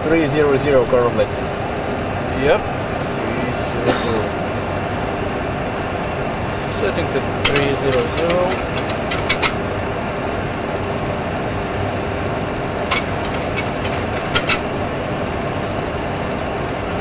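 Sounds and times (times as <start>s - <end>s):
airliner flight deck rushing noise: 7.3s - 9.7s, 12.8s - 15.1s
knobs clicking: 7.4s - 9.6s, 12.9s - 14.8s.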